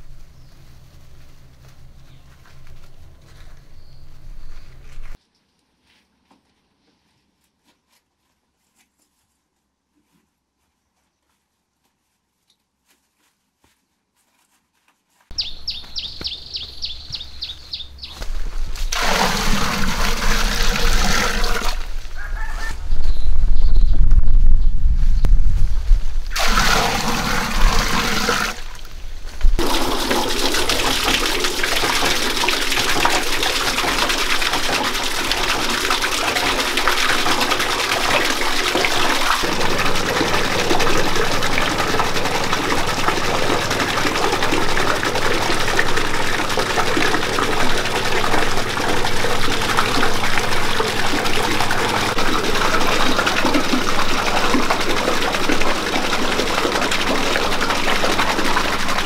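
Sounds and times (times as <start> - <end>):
water pouring and splashing: 18.3 - 22.6, 26.3 - 59.0.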